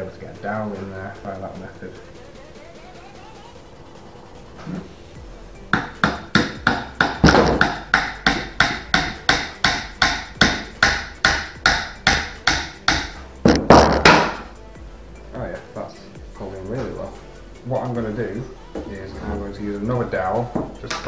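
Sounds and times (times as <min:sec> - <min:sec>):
hammer striking wooden dowel: 0:05.7 - 0:14.5.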